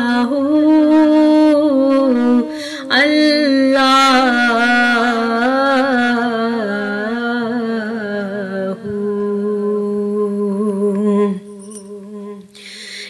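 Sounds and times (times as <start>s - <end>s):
person humming a chant: 0.0s - 13.0s.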